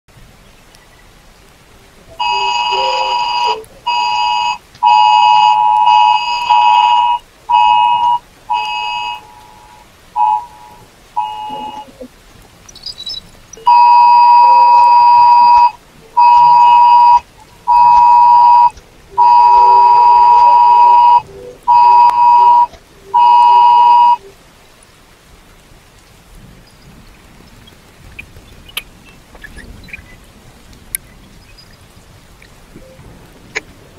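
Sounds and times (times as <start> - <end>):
phone emergency alert tone: 2.1 - 12.1, 13.6 - 24.3
second phone alert: 2.1 - 12.1, 13.6 - 24.3.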